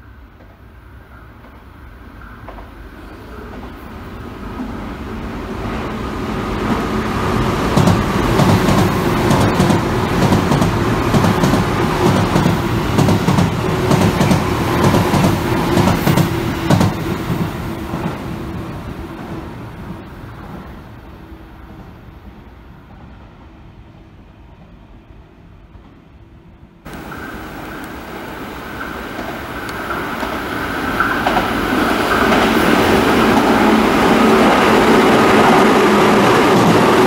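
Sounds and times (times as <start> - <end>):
train rumble: 0.0 - 37.0
train wheels clattering on rail joints: 7.5 - 19.4, 26.9 - 37.0.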